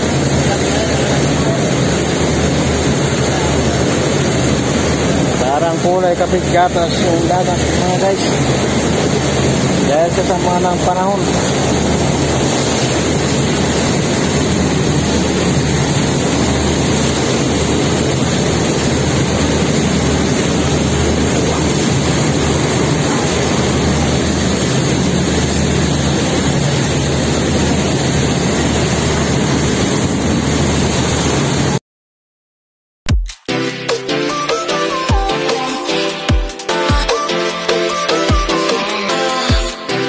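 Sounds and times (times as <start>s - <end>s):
diesel engines droning: 0.0s - 30.8s
water churning in wake: 0.0s - 31.8s
electronic music: 33.1s - 40.0s.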